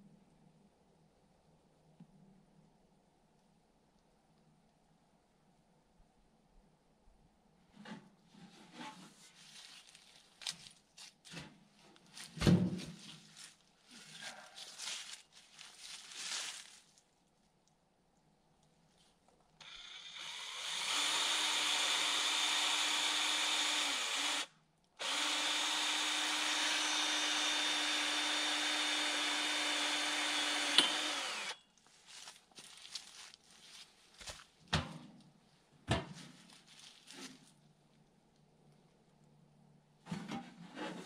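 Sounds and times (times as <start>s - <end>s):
power drill whining: 19.6s - 31.6s.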